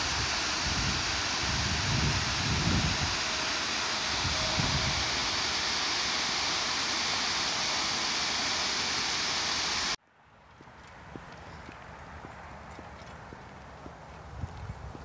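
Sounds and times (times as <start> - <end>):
waterfall rushing: 0.0 - 10.0
faint footsteps on a path: 10.3 - 15.0.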